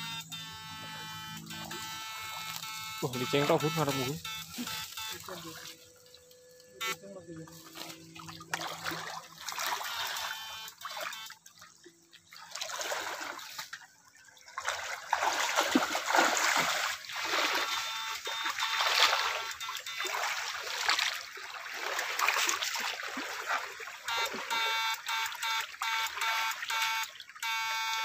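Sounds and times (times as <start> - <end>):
water splashing in stream: 7.5 - 27.4
water pouring from net: 7.6 - 11.7, 12.3 - 24.5.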